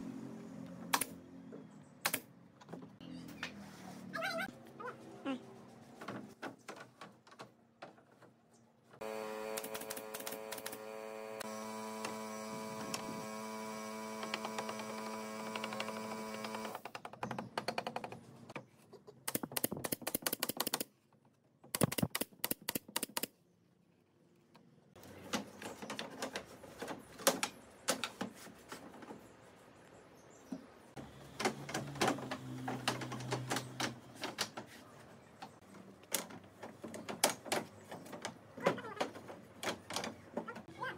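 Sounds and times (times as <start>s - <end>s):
nail gun sharp clicks and knocks: 2.0s - 2.7s, 9.4s - 10.9s, 14.1s - 18.2s, 19.3s - 20.9s, 21.6s - 23.4s
machine hum: 9.0s - 16.8s.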